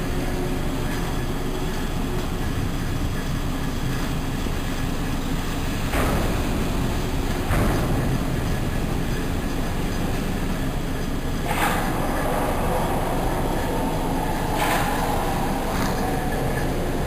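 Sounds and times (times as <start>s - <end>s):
low machinery rumble: 0.0s - 17.0s
loud metallic knocks: 5.9s - 8.9s.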